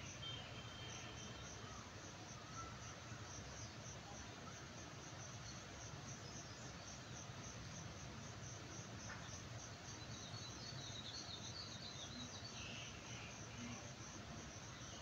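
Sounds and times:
insects chirping: 0.0 - 15.0.

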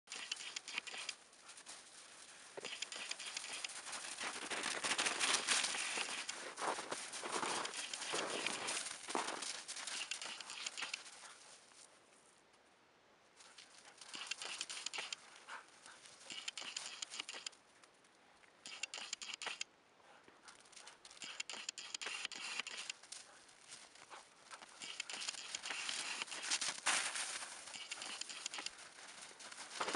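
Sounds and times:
footsteps crunching in snow: 0.7 - 11.9, 23.0 - 29.9.

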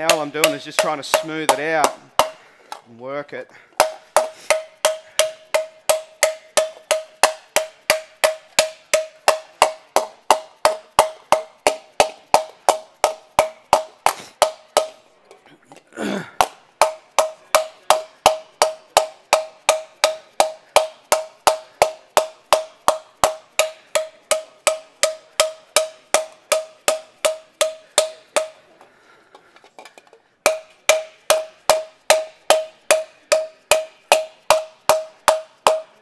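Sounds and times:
rubber mallet striking aluminium panel: 0.0 - 2.4, 3.8 - 15.0, 16.4 - 28.6, 30.4 - 36.0.

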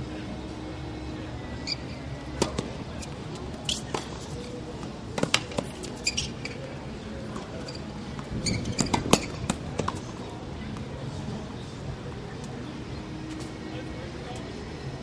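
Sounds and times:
low background noise: 0.0 - 15.0
shoes squeaking on hard court: 1.6 - 10.1
tennis ball strikes and bounces: 2.4 - 2.7, 4.8 - 5.7.

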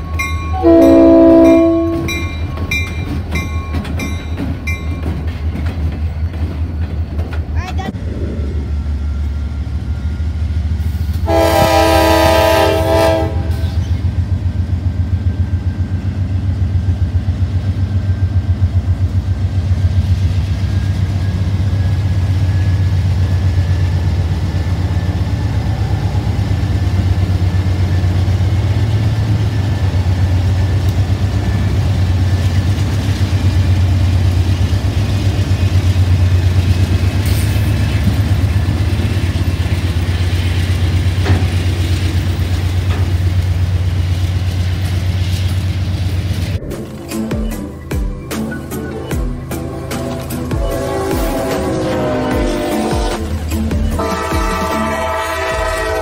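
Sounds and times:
diesel locomotive engines rumbling: 0.0 - 56.0
locomotive horn: 0.5 - 2.3, 11.2 - 13.8, 49.5 - 56.0.

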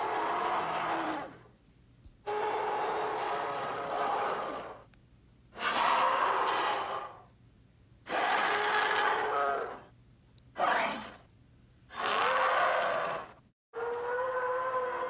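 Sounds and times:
dinosaur roars: 0.0 - 1.4, 2.2 - 4.8, 5.6 - 7.2, 8.1 - 9.9, 11.9 - 15.0.

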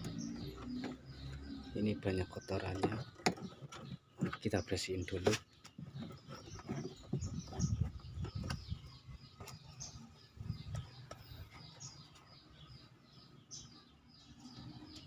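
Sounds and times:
small birds chirping: 0.0 - 15.0
handling noise: 2.4 - 9.9.

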